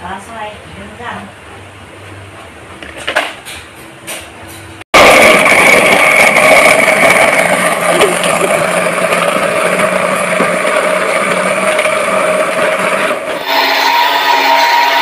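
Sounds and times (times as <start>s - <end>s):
blender motor whirring: 5.0s - 15.0s.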